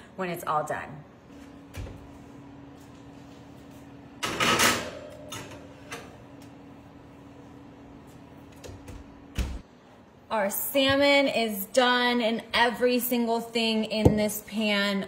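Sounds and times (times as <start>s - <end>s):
steady low hum: 0.9s - 11.5s.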